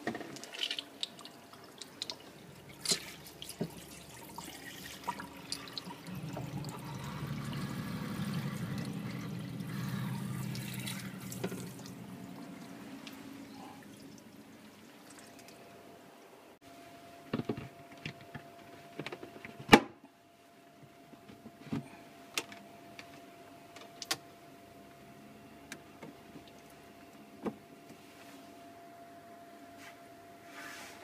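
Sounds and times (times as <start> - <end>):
water streaming into sink drain: 0.4 - 12.8.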